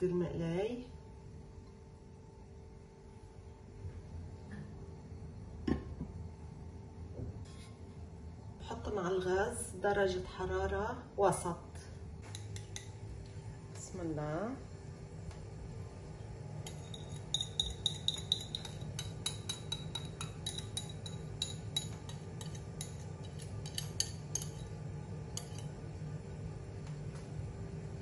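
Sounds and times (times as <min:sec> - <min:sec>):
whisk clinking against ceramic bowl: 0:16.6 - 0:24.7, 0:25.4 - 0:25.7.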